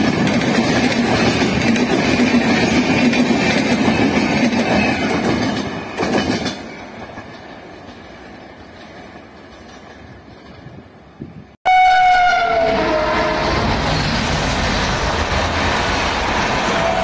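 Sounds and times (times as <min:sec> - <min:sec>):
train wheels rolling: 0:00.0 - 0:11.4, 0:12.8 - 0:17.0
train rumbling: 0:00.0 - 0:17.0
train horn blast: 0:11.6 - 0:13.9, 0:16.6 - 0:17.0.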